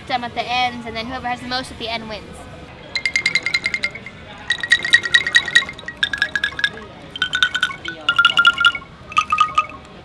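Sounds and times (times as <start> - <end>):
angklung rattling notes: 3.0 - 10.0.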